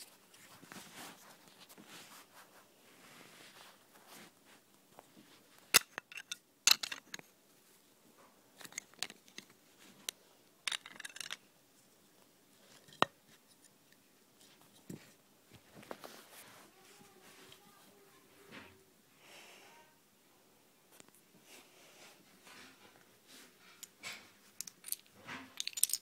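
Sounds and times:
plastic toy bricks clicking: 5.7 - 7.2, 10.7 - 11.4, 24.6 - 26.0.

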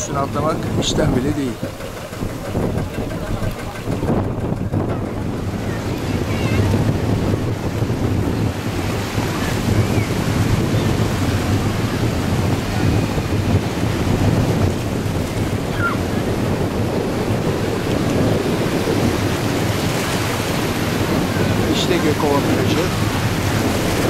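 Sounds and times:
small waves washing: 0.0 - 24.0
wind on microphone: 0.0 - 24.0.

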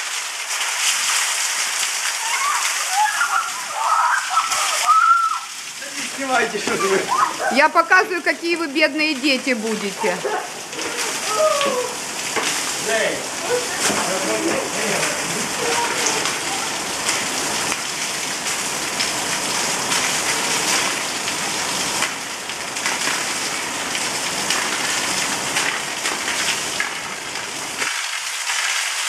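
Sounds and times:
heavy rain hissing: 0.0 - 29.0
raindrop taps: 1.8 - 21.1.

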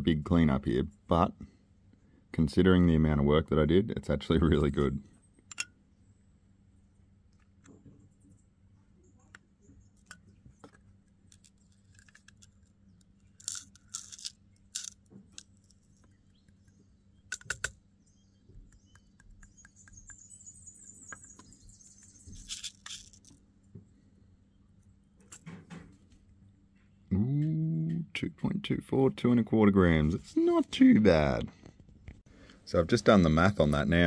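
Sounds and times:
small metal pieces clinking: 13.3 - 15.8, 22.4 - 23.3
faint high-pitched chirps: 18.0 - 23.2.

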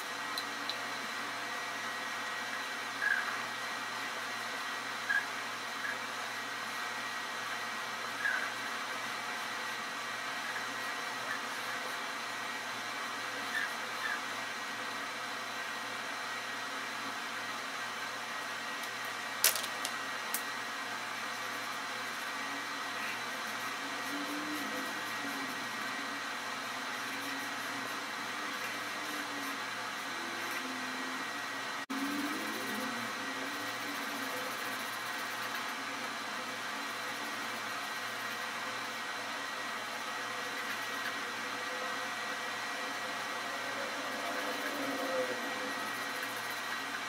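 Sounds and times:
whirring hum: 0.0 - 47.0.

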